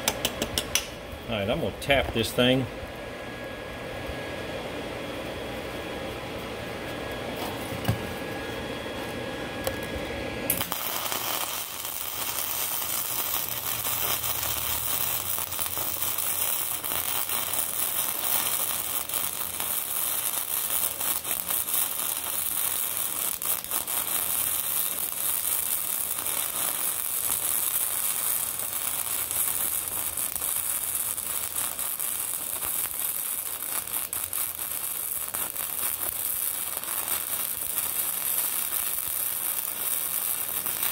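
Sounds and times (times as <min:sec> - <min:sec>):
sharp clicks: 0:00.0 - 0:00.9
welding arc crackling: 0:10.5 - 0:40.9.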